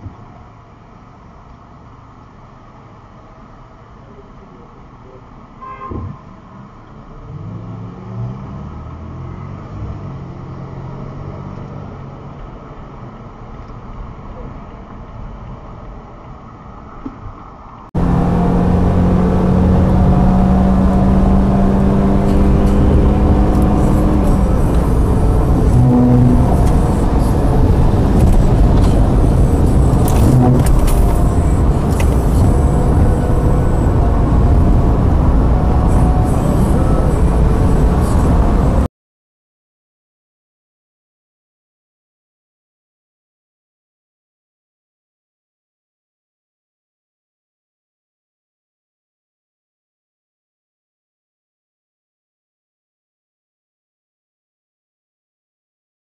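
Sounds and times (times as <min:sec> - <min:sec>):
car engine accelerating: 0:07.1 - 0:12.4, 0:18.0 - 0:38.9
short low tone: 0:18.0 - 0:38.9.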